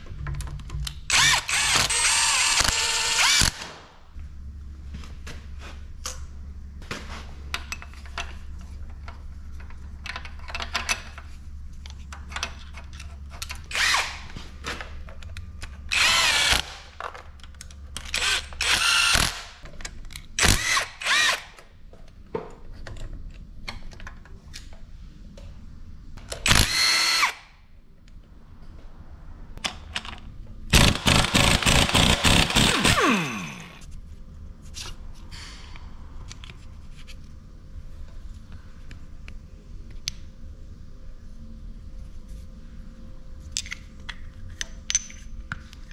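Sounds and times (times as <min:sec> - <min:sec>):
cordless power tool spinning: 0:01.1 - 0:03.6, 0:13.7 - 0:14.3, 0:15.9 - 0:16.8, 0:18.2 - 0:19.4, 0:20.4 - 0:21.5, 0:26.4 - 0:27.4, 0:30.7 - 0:33.8.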